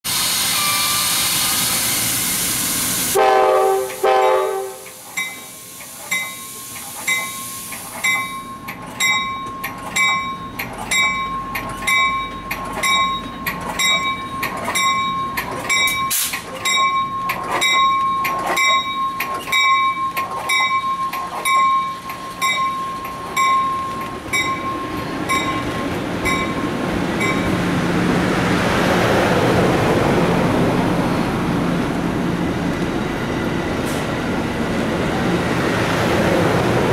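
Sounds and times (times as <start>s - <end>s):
train rolling away: 0.1s - 36.9s
train horn blast: 3.1s - 5.0s
train bell ringing: 3.8s - 27.7s.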